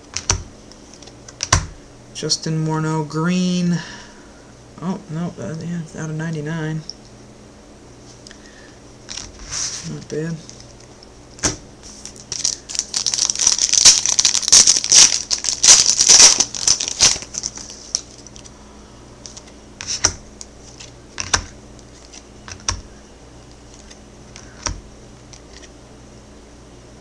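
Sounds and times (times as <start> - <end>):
cards clicking and tapping: 0.1 - 1.7, 21.2 - 22.9
wrapper crinkling: 11.9 - 18.5.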